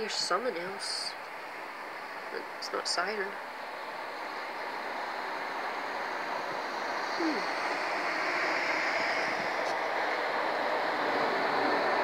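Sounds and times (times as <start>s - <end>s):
distant rumble: 0.0s - 12.0s.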